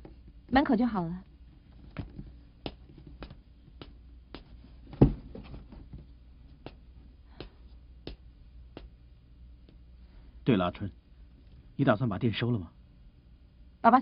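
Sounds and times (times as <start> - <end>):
footsteps on hard floor: 1.9 - 6.8
cardboard box set down thump: 4.9 - 5.9.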